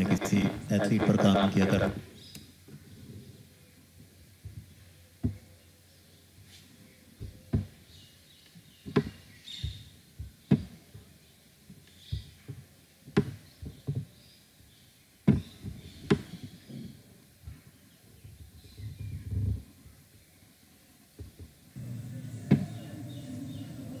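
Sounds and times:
sharp knocks and thuds: 7.2s - 7.8s, 8.8s - 10.8s, 12.1s - 14.1s, 15.2s - 16.4s.

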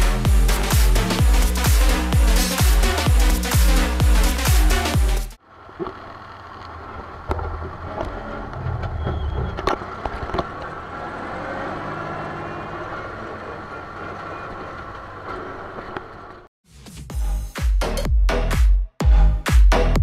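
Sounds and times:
tractor engine running: 0.0s - 16.5s
cab rattling: 5.8s - 16.5s.

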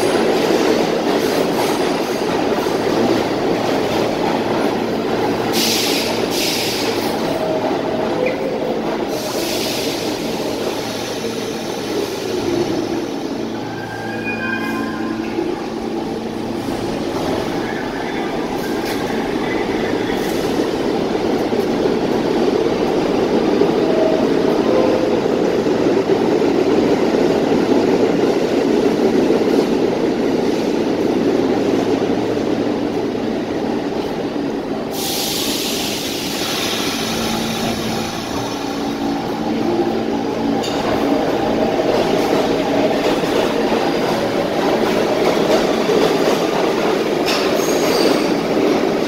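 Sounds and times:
subway train rumbling: 0.0s - 49.0s
high hiss of air: 5.5s - 7.2s, 9.1s - 12.3s, 34.9s - 38.8s.

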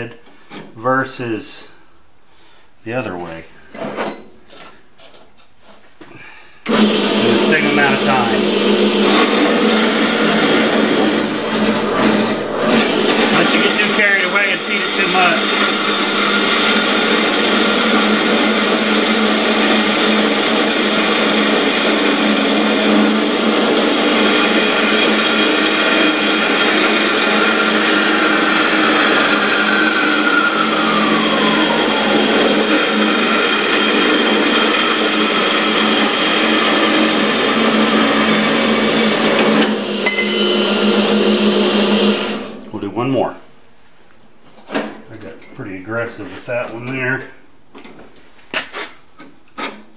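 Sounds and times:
whine sliding down in pitch: 6.7s - 17.9s, 27.2s - 33.6s
band saw cutting steel: 6.7s - 42.7s.

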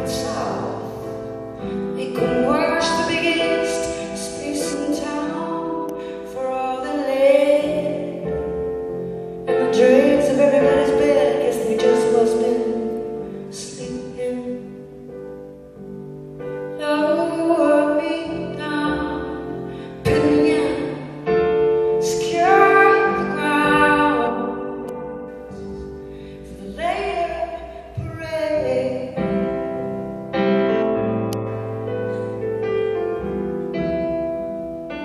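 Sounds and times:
woman singing slow song: 0.0s - 1.0s, 2.0s - 8.3s, 9.5s - 14.9s, 16.7s - 21.3s, 22.0s - 24.9s, 26.4s - 29.3s
piano chords: 0.0s - 35.0s.

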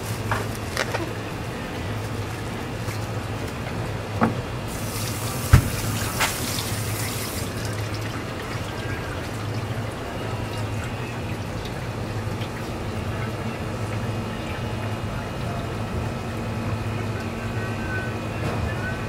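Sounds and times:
tap water running onto plastic: 0.0s - 14.1s
steady low hum: 0.0s - 19.0s.

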